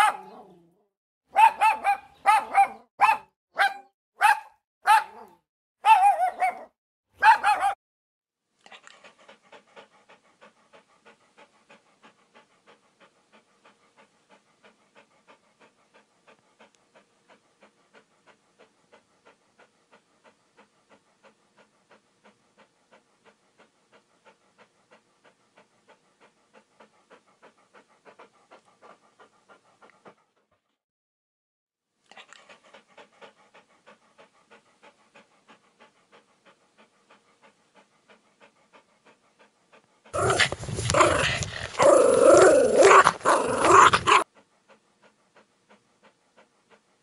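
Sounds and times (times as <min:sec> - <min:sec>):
dog panting: 0:08.6 - 0:30.8, 0:32.0 - 0:47.0.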